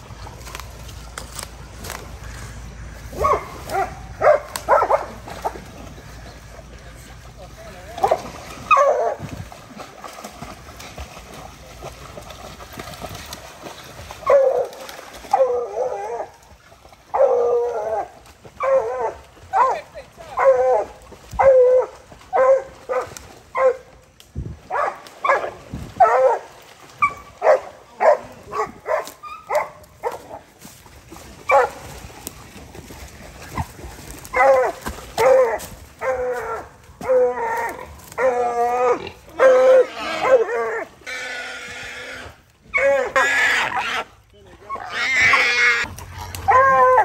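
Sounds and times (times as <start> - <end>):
dogs barking: 3.1 - 5.7, 8.0 - 9.2, 14.2 - 16.3, 17.1 - 23.9, 24.7 - 30.4, 31.4 - 31.9, 34.3 - 40.9, 46.3 - 47.0.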